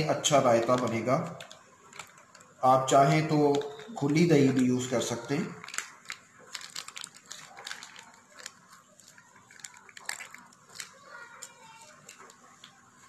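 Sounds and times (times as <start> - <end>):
plastic pouch crinkling: 0.0 - 13.0.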